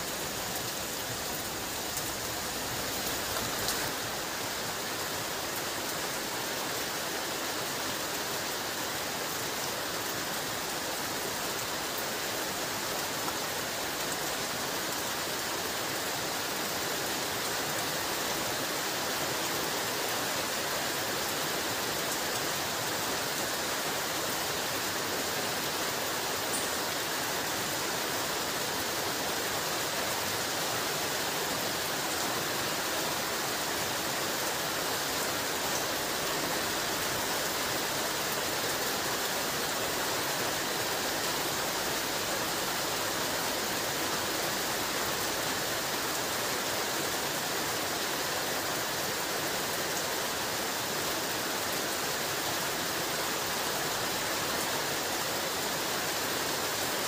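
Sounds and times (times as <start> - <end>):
heavy rain falling: 0.0 - 57.0.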